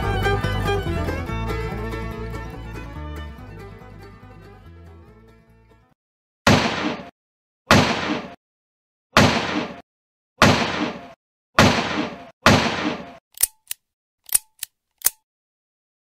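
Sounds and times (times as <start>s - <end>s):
revolver gunshots echoing: 6.5s - 7.1s, 7.7s - 8.4s, 9.2s - 9.8s, 10.4s - 13.2s
short sharp clicks: 13.0s - 15.2s.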